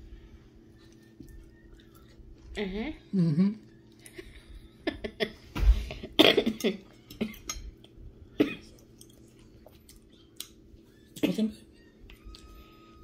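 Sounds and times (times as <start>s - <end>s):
person coughing: 5.9s - 7.4s, 8.4s - 8.8s.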